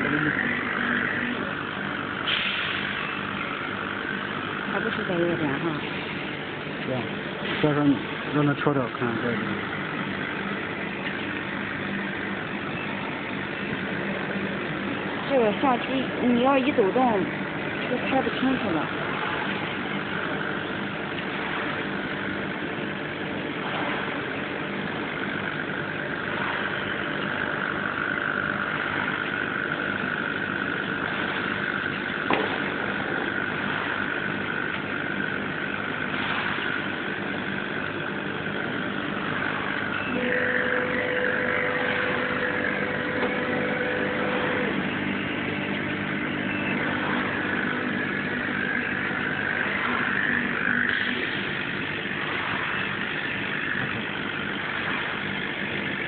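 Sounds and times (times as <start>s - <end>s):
laser cutter humming and whining: 0.0s - 56.0s
high steady tone: 39.8s - 54.2s.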